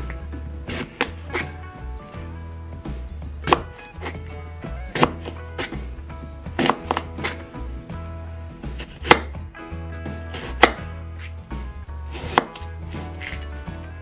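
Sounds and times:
soft background music: 0.0 - 14.0
knife chopping on cutting board: 8.8 - 9.3, 10.4 - 10.8, 12.1 - 12.6.

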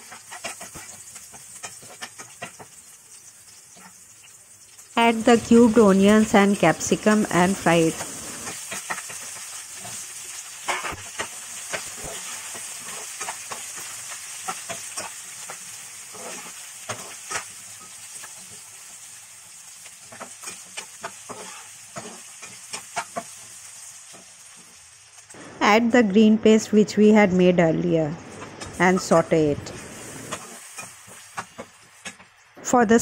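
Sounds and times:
vegetables sizzling in oil: 0.0 - 27.4, 28.1 - 33.0.

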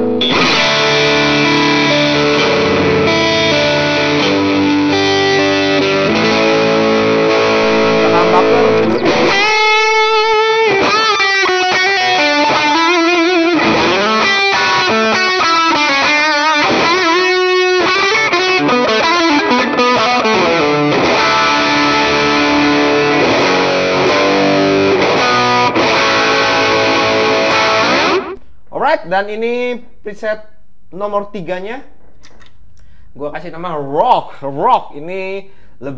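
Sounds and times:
overdriven electric guitar: 0.0 - 28.5.

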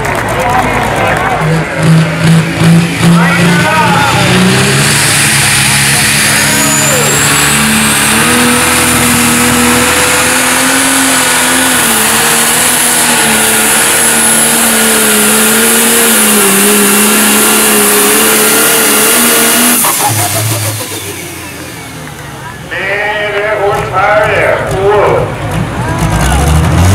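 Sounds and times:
diesel tractor engine under load: 0.0 - 26.9
high turbo whistle: 5.6 - 8.4.

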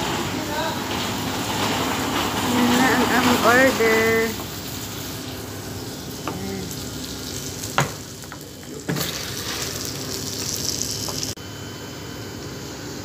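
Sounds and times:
meat sizzling on hot plate: 3.5 - 11.4
dishes knocking: 7.8 - 9.1.

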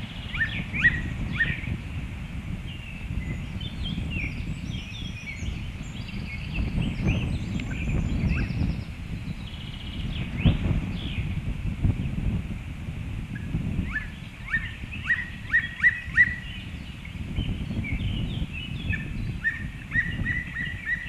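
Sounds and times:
bird chirps and buzzy notes: 0.0 - 2.0, 2.6 - 11.4, 13.3 - 21.0
wind rumble on microphone: 0.0 - 21.0
sharp pitch-sweeping bird calls: 0.1 - 1.8, 13.4 - 17.0, 17.8 - 21.0.

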